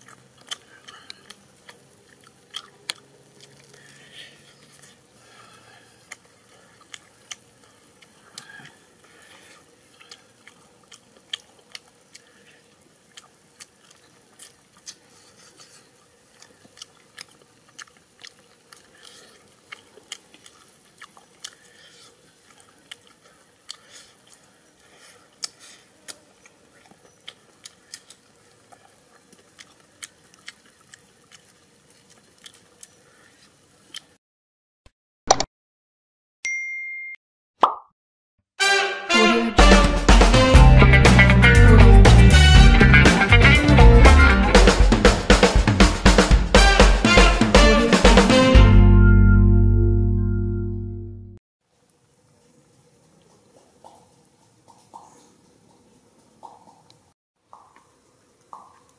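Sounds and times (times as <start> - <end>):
person chewing with crunches: 0.0 - 34.2
mouth clicks: 25.4 - 31.5.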